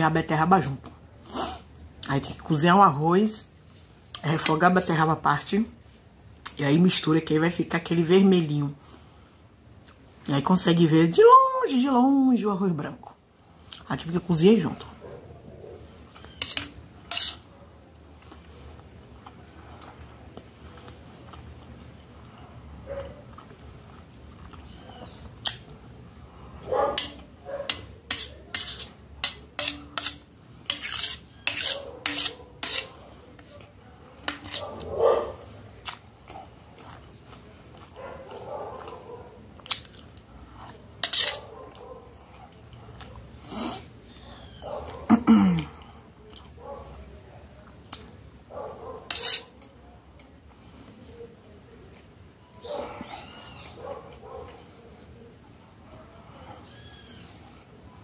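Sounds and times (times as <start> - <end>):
metal spoon scraping steel plate: 16.2 - 17.5, 27.0 - 33.0, 34.2 - 34.7, 41.0 - 41.4, 49.1 - 49.6.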